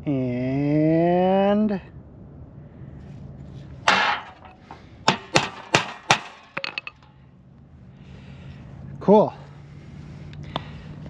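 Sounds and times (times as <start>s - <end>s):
hammer tapping on steel: 5.1s - 7.0s.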